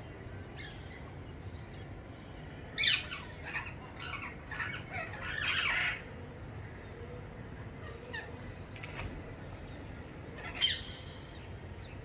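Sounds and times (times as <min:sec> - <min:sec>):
parakeets screeching: 0:02.8 - 0:06.1, 0:10.3 - 0:11.4.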